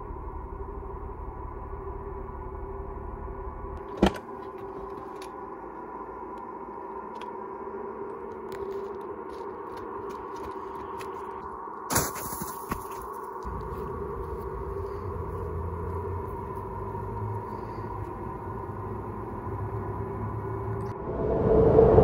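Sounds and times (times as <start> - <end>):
low drone with held tones: 13.4 - 22.0.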